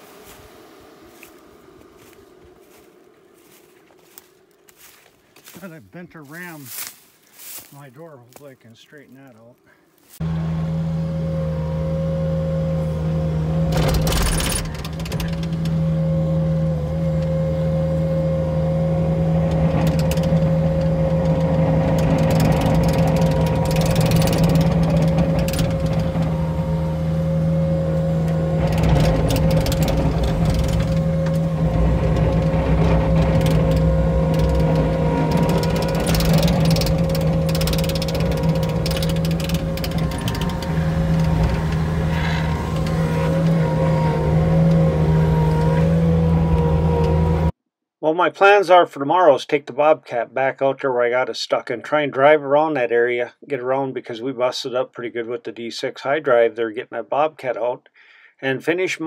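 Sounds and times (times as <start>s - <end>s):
brush crackling and snapping: 6.4s - 8.6s
engine running under load: 10.1s - 47.6s
hydraulic brush cutter whine: 10.2s - 47.6s.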